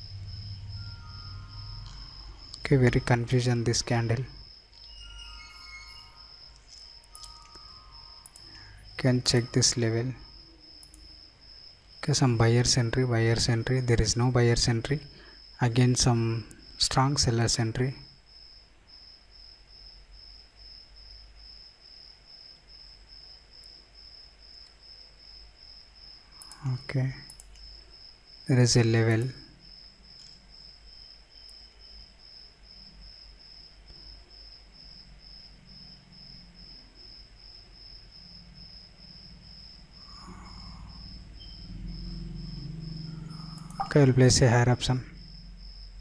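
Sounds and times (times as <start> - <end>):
high-pitched pulsing chirping: 0.0 - 10.6, 40.0 - 45.4
cricket chirping: 0.0 - 46.0
faint low hum: 0.0 - 46.0.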